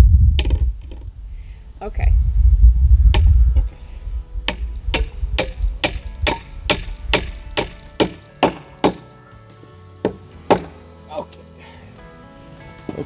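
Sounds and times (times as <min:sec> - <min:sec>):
hammer driving nail into wood: 0:04.5 - 0:09.1, 0:10.0 - 0:10.8.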